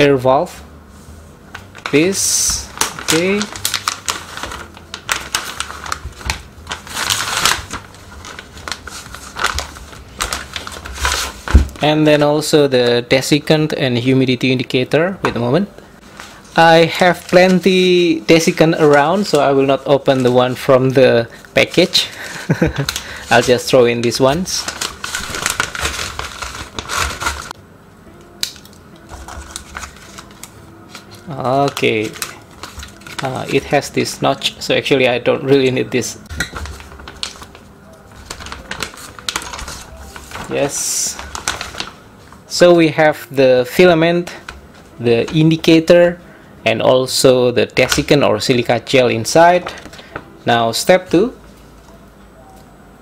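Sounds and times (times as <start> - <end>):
plastic bag crinkling: 1.6 - 11.9, 16.3 - 27.6, 29.0 - 34.6, 36.4 - 42.7.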